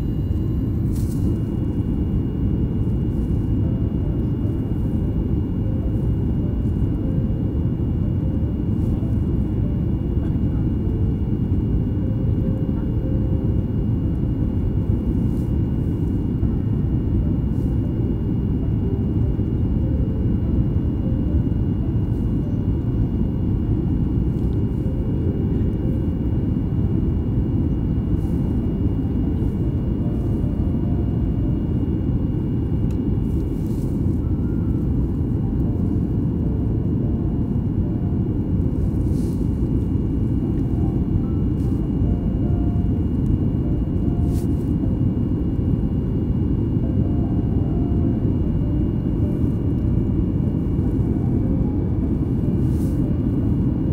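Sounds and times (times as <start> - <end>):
faint thin whine: 0.0 - 53.9
jet engines rumbling in cabin: 0.0 - 53.9.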